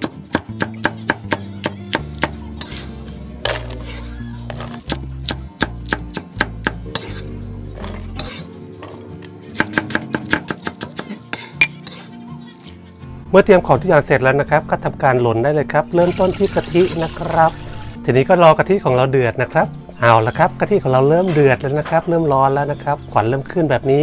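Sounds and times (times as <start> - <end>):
background music: 0.0 - 24.0
cleaver chopping on wooden block: 9.6 - 11.0.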